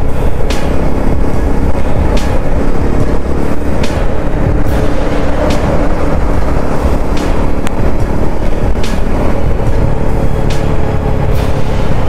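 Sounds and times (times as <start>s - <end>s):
motorcycle engine running: 0.0s - 12.0s
wind rushing on microphone: 0.0s - 12.0s.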